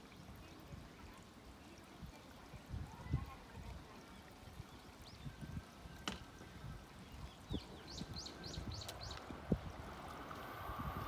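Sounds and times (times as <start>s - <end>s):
water-like noise: 0.0s - 11.0s
bird chirping: 7.0s - 9.2s.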